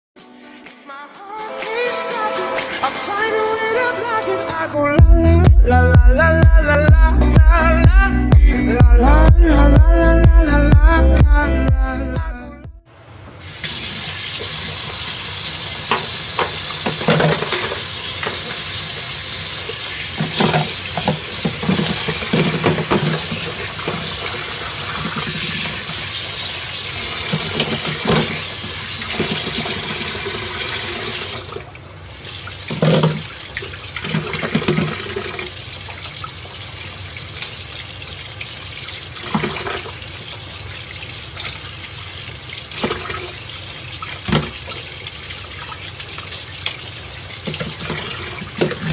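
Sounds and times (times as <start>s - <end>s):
tap running into steel sink: 15.8s - 19.1s, 20.1s - 24.3s, 27.2s - 30.1s, 32.7s - 33.3s, 44.2s - 44.8s, 47.4s - 48.9s
knocks and splashes handling food: 15.9s - 18.7s, 20.1s - 25.8s, 32.7s - 35.5s, 39.2s - 40.0s, 42.7s - 43.4s, 44.1s - 44.9s, 47.4s - 48.9s.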